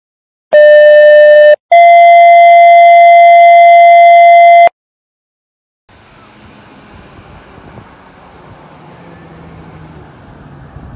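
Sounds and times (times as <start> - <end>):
two-tone paging tone: 0.6 - 4.7
faint street noise: 5.9 - 10.9.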